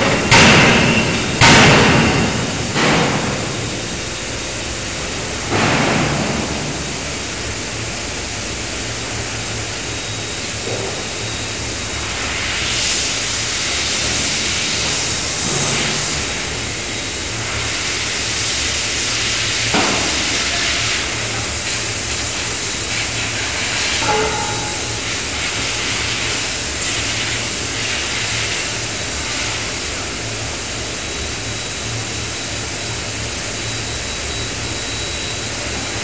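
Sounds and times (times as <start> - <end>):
machinery hiss and roar: 0.0 - 36.0
forging hammer blows: 24.0 - 25.2.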